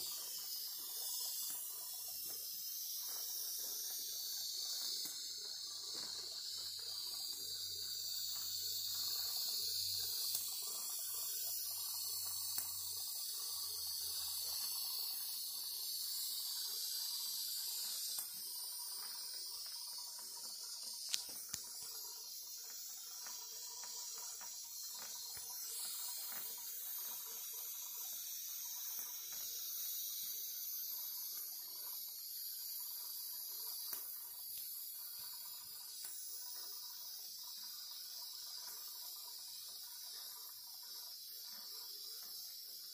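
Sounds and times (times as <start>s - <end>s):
steam engine hissing: 0.0s - 32.0s.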